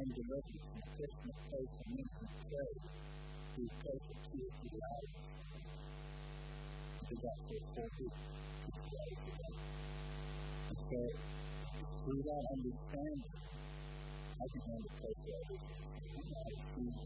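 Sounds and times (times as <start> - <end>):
quiet voice: 0.0 - 2.9, 3.6 - 5.3, 7.0 - 9.6, 10.7 - 13.4, 14.3 - 17.0
electrical mains hum: 0.0 - 17.0.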